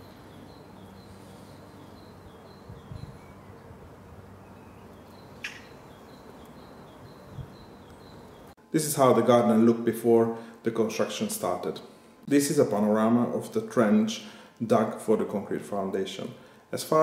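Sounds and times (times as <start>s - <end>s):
faint low background hum: 0.0s - 17.0s.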